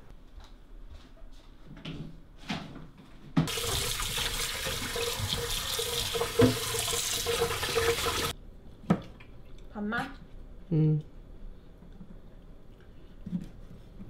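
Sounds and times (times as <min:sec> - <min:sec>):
water splashing into metal pot: 0:03.5 - 0:08.3.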